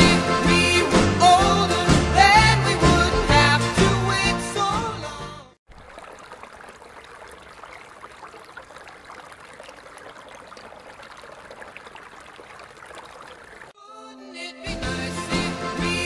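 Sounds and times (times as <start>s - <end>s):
fine splashing crackles: 5.7s - 13.8s
running water: 5.7s - 13.8s.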